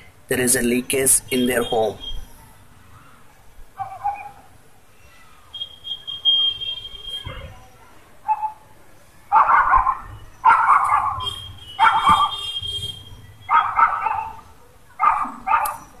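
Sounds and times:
dog barking: 3.8 - 4.5, 8.2 - 8.6, 9.3 - 12.4, 13.4 - 16.0.

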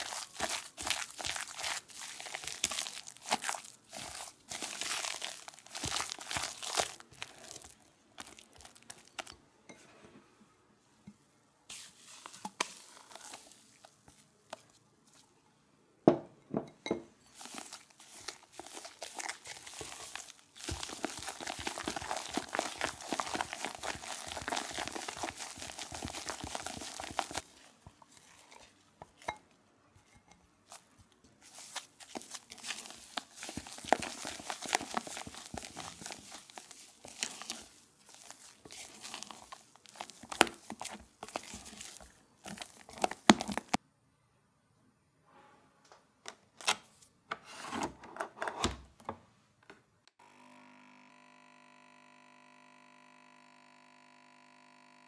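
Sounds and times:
spatula scraping cream in glass bowl: 17.2 - 29.4, 30.0 - 43.7.

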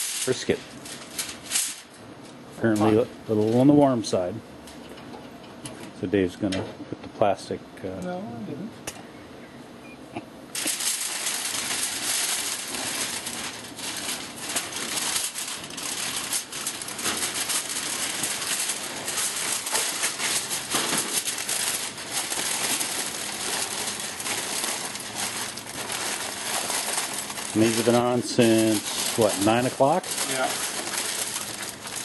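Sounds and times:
aluminum foil crinkling: 0.0 - 3.6, 10.5 - 32.0.

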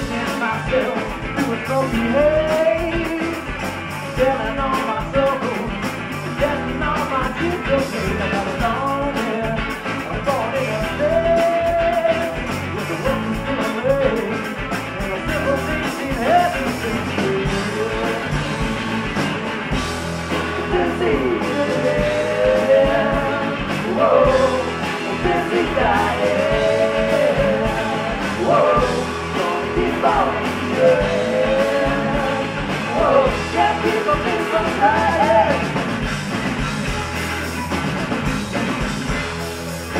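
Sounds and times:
drums: 0.0 - 39.9
electric guitars: 0.0 - 39.9.

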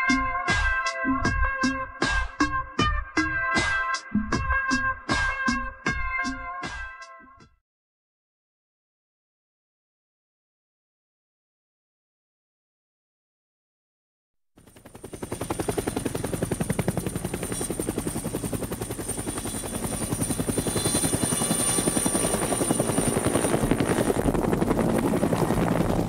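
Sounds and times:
helicopter rotor chopping: 14.6 - 26.0.

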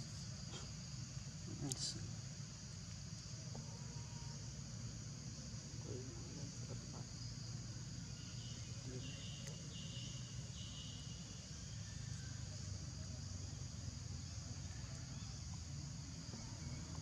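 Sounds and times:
high-pitched insect chorus: 0.0 - 17.0
short buzzing insect calls: 8.0 - 12.3.

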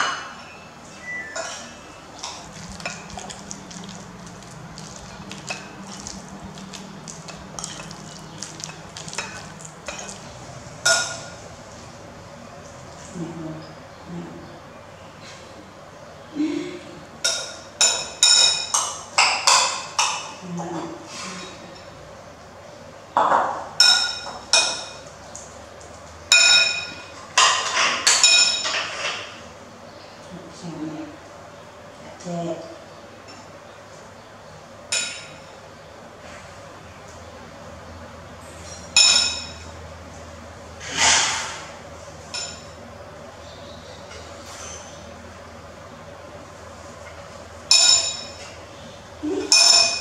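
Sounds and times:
spoon clinking on bowl: 0.0 - 10.2, 38.8 - 39.8, 47.7 - 48.6, 49.5 - 50.0
spoon mixing wet filling: 1.2 - 11.5.

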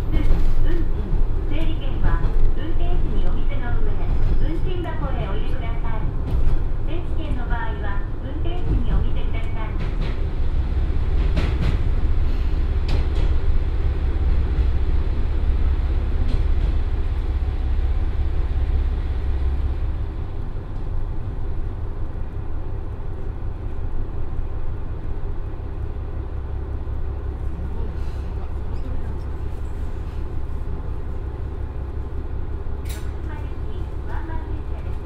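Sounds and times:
train engine and wheels rumbling: 0.0 - 35.0.

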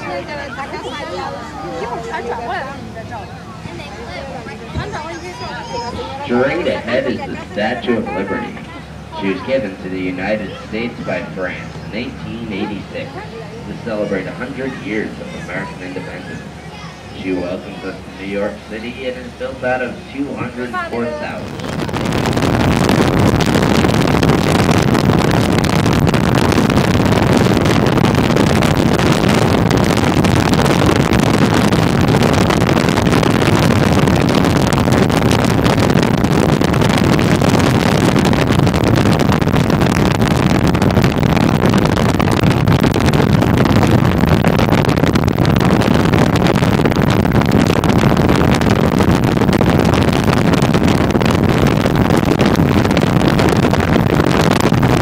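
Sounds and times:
car road noise: 0.0 - 55.0
rushing wind: 0.0 - 55.0.

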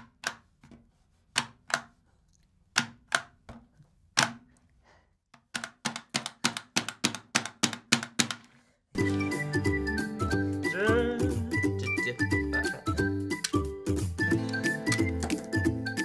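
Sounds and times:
upbeat music: 9.0 - 16.0.

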